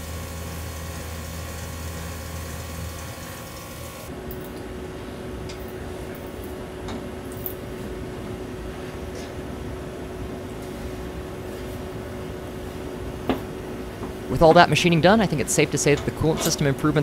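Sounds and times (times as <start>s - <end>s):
coolant spray hissing: 0.0s - 4.1s
milling machine humming: 0.0s - 4.2s.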